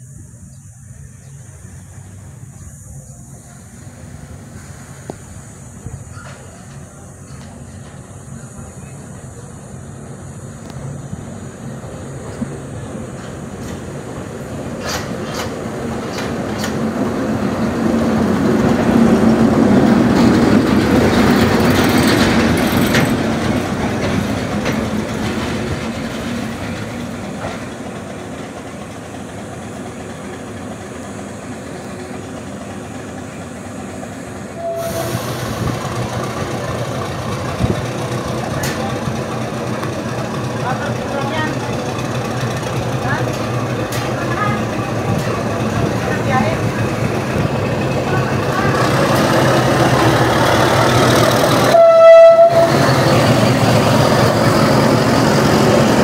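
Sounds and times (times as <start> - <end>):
diesel locomotive engine: 0.0 - 56.0
wheels clicking over rail joints: 12.2 - 31.1, 35.6 - 56.0.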